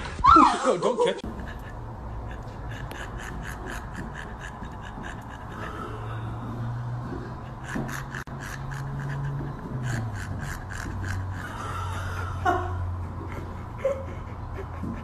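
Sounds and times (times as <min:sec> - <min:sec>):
dog panting: 0:01.2 - 0:15.0.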